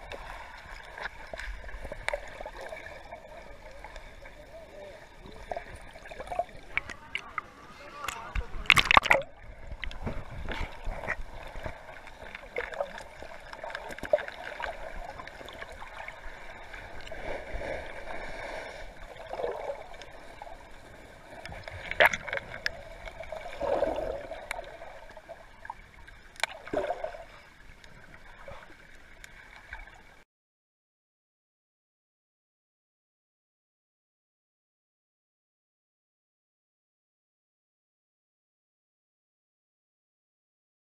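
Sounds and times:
muffled underwater water rush: 0.0 - 30.2.

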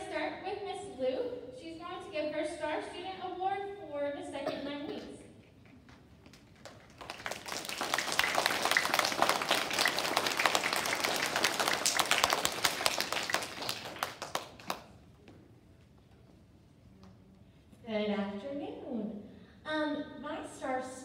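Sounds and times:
children clapping: 6.2 - 14.9.

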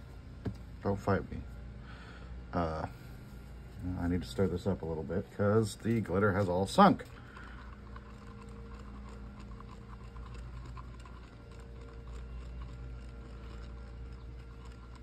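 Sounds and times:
low steady hum: 0.0 - 15.0
stir stick scraping cup: 5.7 - 15.0.

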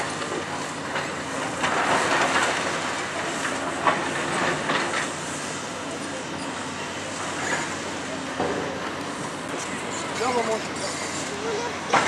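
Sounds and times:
excavator diesel engine: 0.0 - 12.0.

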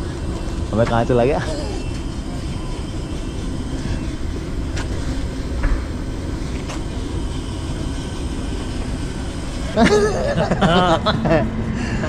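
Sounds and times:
train rumbling past: 0.0 - 12.0.

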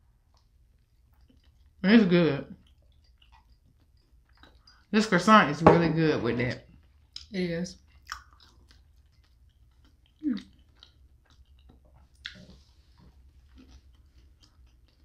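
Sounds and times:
chewing pastry: 0.0 - 5.1, 6.6 - 15.0
pastry crunch: 7.0 - 15.0.

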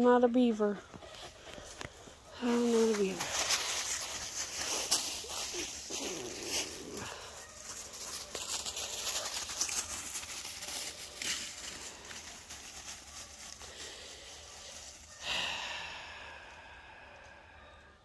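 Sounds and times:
crackling in dry leaves and sticks: 0.0 - 17.4
breathy sigh: 15.2 - 18.0.

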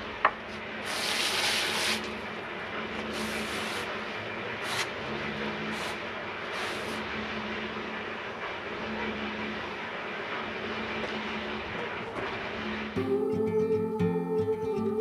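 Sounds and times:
low steady hum: 0.0 - 15.0
garden hose spraying water: 0.7 - 2.3, 3.0 - 5.0, 5.6 - 7.1.

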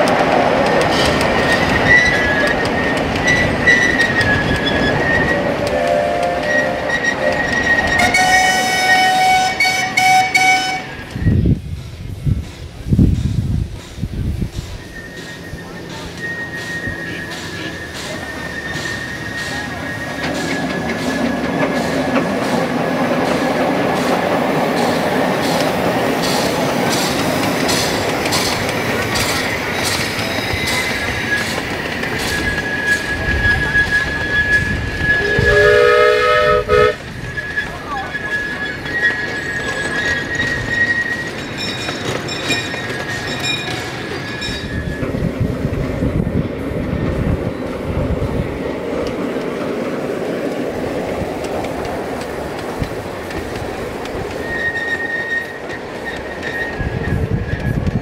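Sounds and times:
wheels clicking over track: 0.0 - 35.7, 36.9 - 58.0
steam locomotive chuffing: 0.0 - 58.0
train rumbling: 0.0 - 58.0
wheel squeal: 0.8 - 11.5, 14.5 - 45.3, 53.2 - 58.0.

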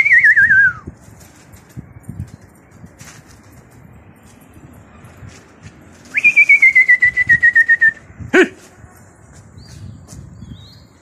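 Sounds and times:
trilling whistle: 0.0 - 0.9, 6.1 - 8.0.

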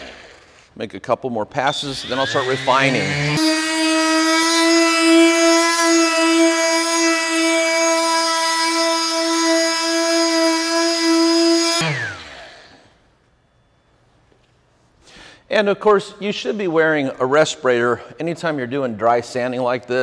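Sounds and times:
orbital sander whining: 0.0 - 0.6, 1.8 - 12.9.

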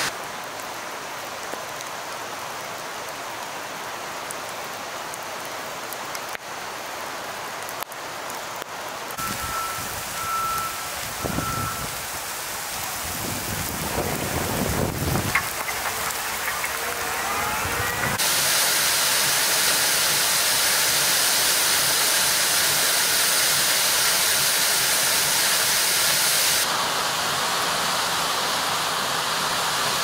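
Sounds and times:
rain falling on road: 0.0 - 30.0
backup alarm beeping: 9.2 - 12.2
heavy debris rumbles: 13.0 - 18.2
diesel engine running: 13.2 - 18.4.

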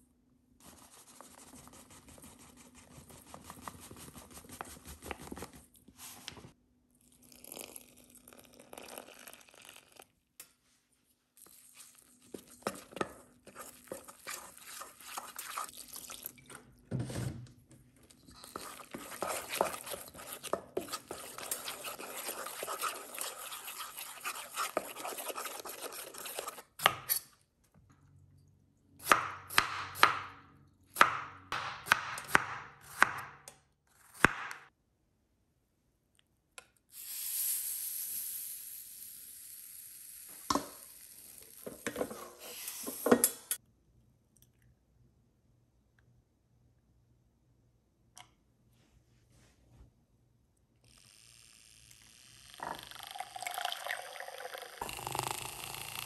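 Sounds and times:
knife chopping on cutting board: 29.0 - 30.4, 31.0 - 33.4, 34.2 - 34.6.

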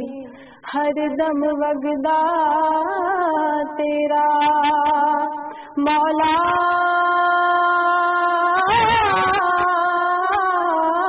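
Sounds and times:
woman singing a long note: 0.0 - 11.0.

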